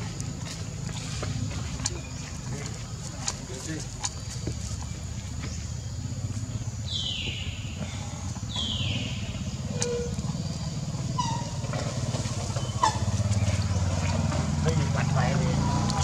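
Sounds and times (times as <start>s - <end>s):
motorbike engine running: 0.0s - 16.0s.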